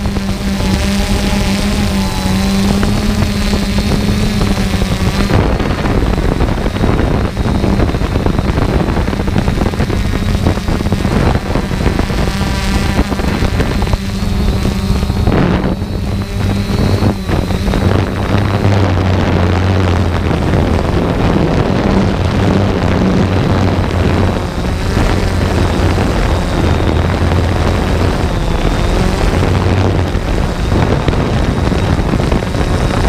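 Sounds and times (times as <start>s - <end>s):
drone propellers buzzing: 0.0s - 33.0s
wind noise: 0.0s - 33.0s.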